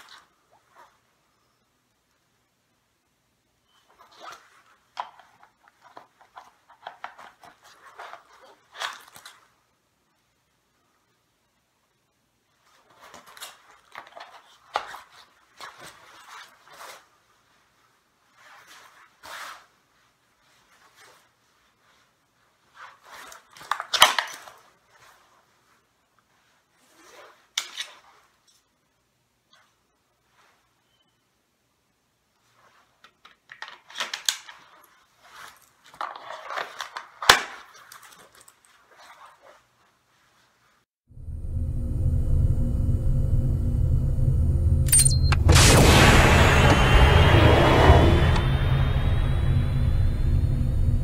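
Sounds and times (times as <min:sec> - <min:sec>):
nylon jacket rustling: 0:12.5 - 0:28.8, 0:34.4 - 0:41.0.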